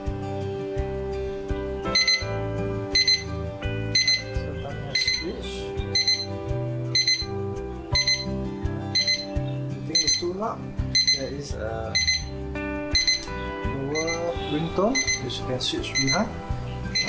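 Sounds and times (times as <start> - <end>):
soft background music: 0.0 - 17.0
timer alarm beeping: 1.9 - 17.0.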